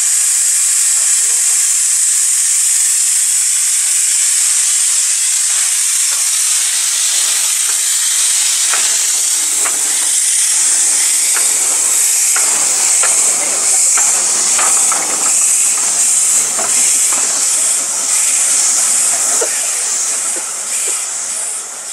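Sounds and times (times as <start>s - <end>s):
steam hissing from locomotive: 0.0s - 21.9s
faint clicks: 4.5s - 21.1s.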